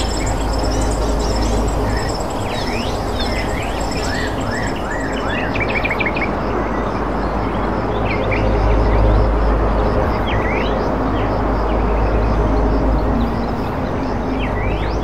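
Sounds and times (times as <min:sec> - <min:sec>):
birds chirping and calling: 0:00.0 - 0:05.9
rapid high pulsing call: 0:00.0 - 0:05.9
whistled bird notes: 0:00.0 - 0:06.1.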